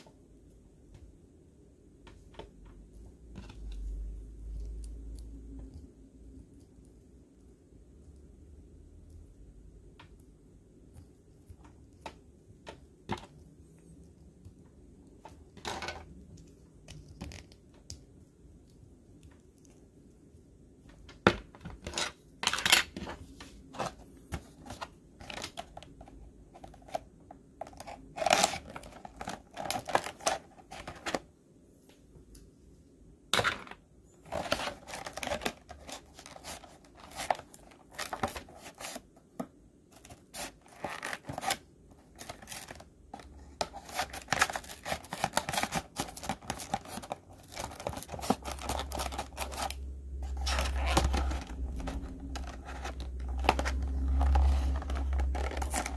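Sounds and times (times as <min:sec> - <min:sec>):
plastic blister pack crinkling: 0:27.6 - 0:31.2, 0:34.2 - 0:39.0, 0:39.9 - 0:55.9.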